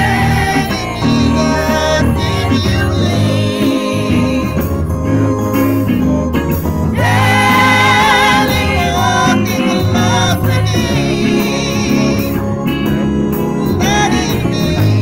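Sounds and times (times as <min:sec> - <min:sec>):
woman singing: 0:00.0 - 0:04.7
instrumental backing: 0:00.0 - 0:15.0.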